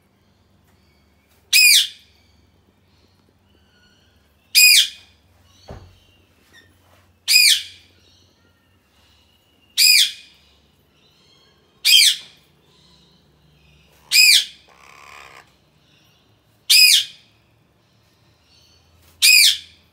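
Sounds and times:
parakeet squawking: 14.0s - 15.5s.

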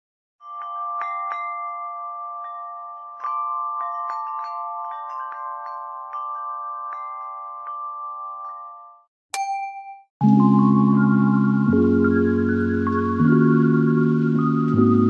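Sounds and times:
bell-like chime jingle: 0.4s - 15.0s
held ringing chord: 9.4s - 15.0s.

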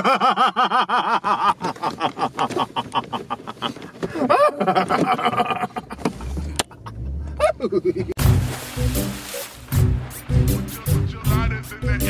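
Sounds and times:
man cackling: 0.0s - 6.1s, 6.7s - 8.2s.

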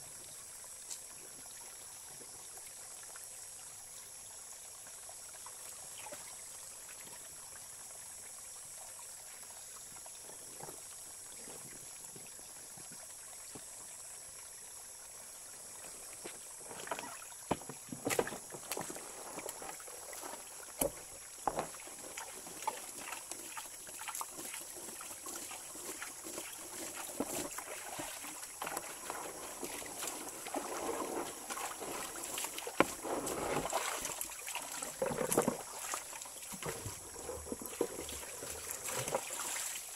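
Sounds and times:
stream burbling over rocks: 0.0s - 39.9s
water splashing from a basin: 16.1s - 39.9s.

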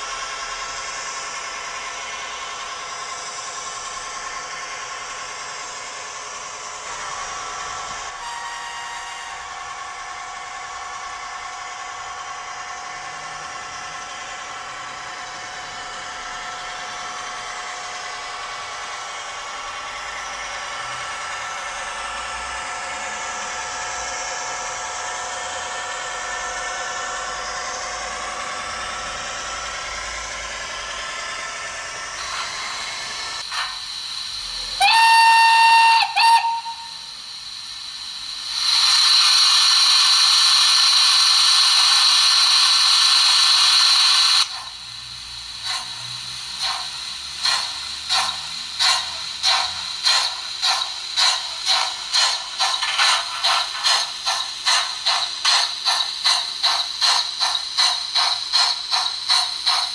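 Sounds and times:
steam locomotive exhaust chuffs: 0.0s - 59.9s
train whistle blast: 8.1s - 9.9s, 34.6s - 37.2s
loud hiss of steam: 32.1s - 59.9s.

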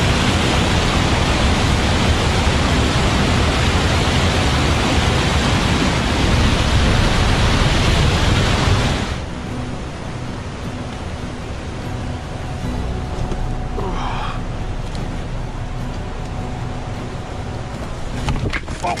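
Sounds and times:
stream rushing over boulders: 0.0s - 19.0s.

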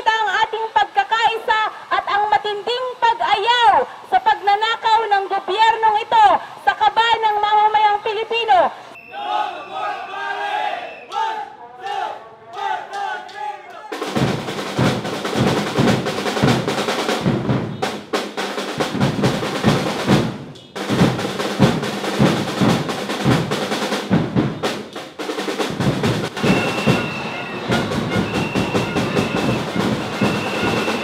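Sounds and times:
rapid drumming and banging: 13.9s - 31.0s.

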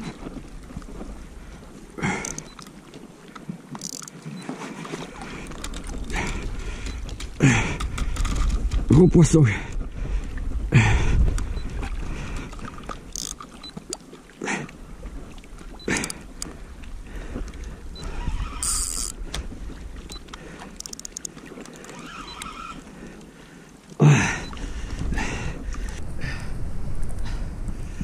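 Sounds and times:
water washing around float tube: 0.0s - 7.6s, 8.7s - 26.2s
fishing reel clicks and knocks: 2.2s - 2.7s, 3.8s - 4.2s, 13.1s - 13.5s, 15.9s - 16.5s, 18.6s - 19.2s, 20.8s - 22.4s.

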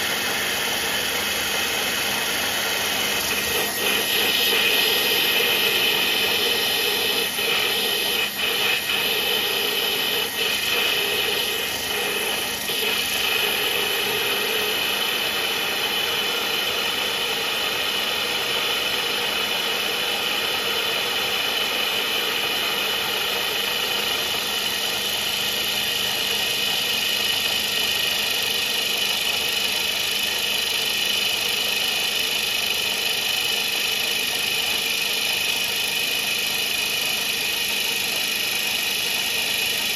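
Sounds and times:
spray coolant hissing: 0.0s - 17.3s
milling machine cutting metal: 0.0s - 39.9s.

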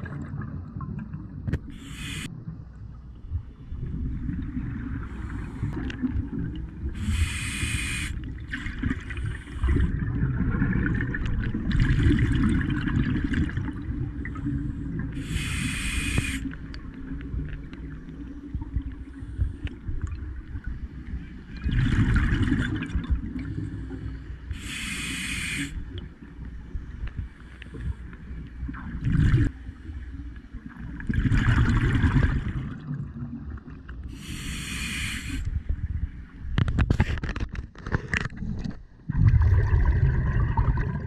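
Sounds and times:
exhaled bubbles underwater: 0.0s - 2.3s, 3.4s - 19.4s, 20.0s - 24.0s, 28.6s - 29.6s, 30.6s - 35.0s, 38.4s - 41.0s
low rumble of water: 0.0s - 24.9s, 25.7s - 41.0s.

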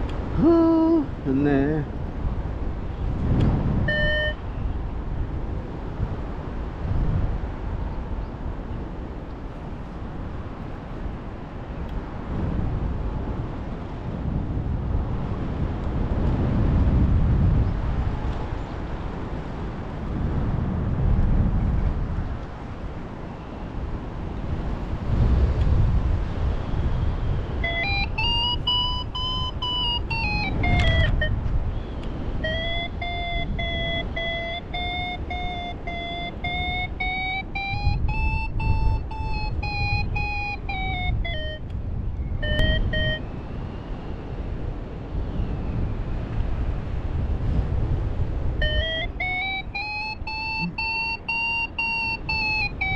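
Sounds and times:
wind buffeting microphone: 0.0s - 52.9s
variometer electronic tone: 3.8s - 4.5s, 27.5s - 31.4s, 32.4s - 43.5s, 48.6s - 52.9s.

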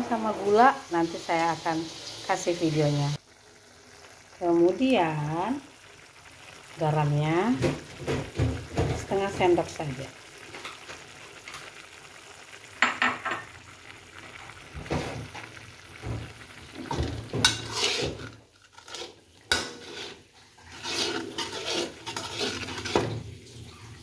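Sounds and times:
paste sizzling: 0.0s - 23.5s
spatula knocking pan: 12.8s - 13.5s, 16.0s - 18.2s
spatula scraping wok: 16.8s - 23.4s.

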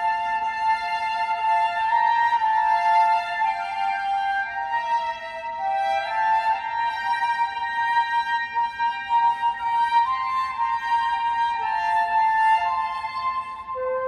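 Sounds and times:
violin and flute duet: 0.0s - 14.0s.

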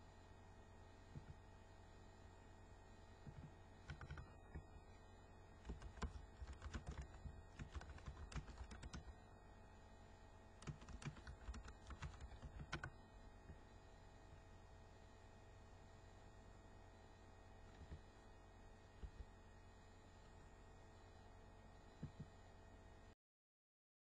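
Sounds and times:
low steady hum: 0.0s - 23.2s
typing on computer keyboard: 3.3s - 4.7s, 5.6s - 9.2s, 10.6s - 12.9s.

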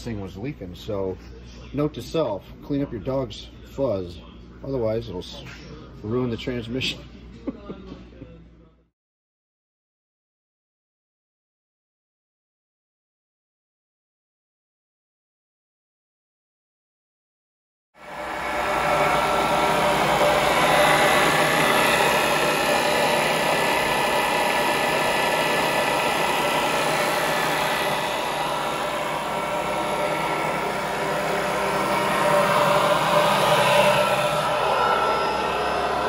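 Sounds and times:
machinery humming and whining: 18.0s - 36.0s.

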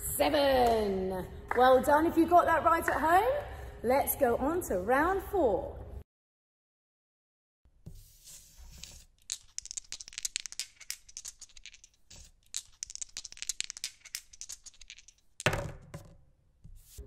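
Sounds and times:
dice rattling: 8.7s - 16.2s.

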